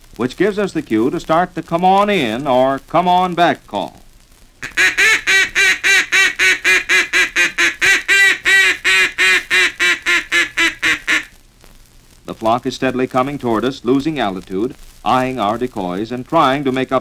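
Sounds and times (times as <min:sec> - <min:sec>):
duck call quacking: 0:04.6 - 0:11.4.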